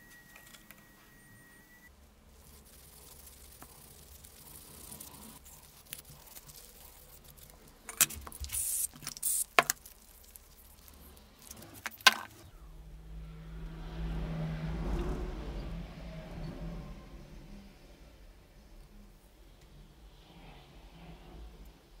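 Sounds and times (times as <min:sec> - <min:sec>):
hissing scrapes: 0:02.3 - 0:19.2.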